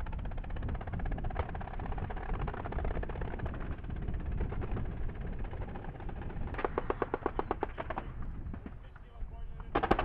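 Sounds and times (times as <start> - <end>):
low steady rumble: 0.0 - 10.0
automatic gunfire: 6.5 - 8.2, 9.7 - 10.0.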